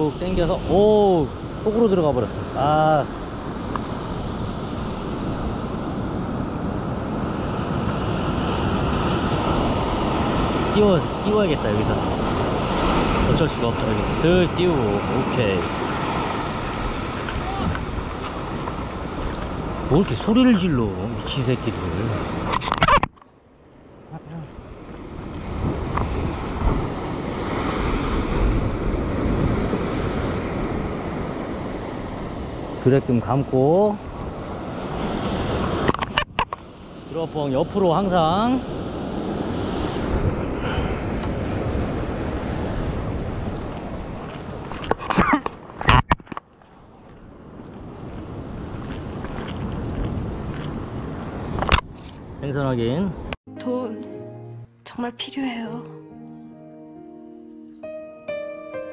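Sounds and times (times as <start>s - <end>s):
surf washing against rocks: 0.0s - 22.5s
wind buffeting microphone: 24.6s - 37.0s, 38.2s - 52.4s.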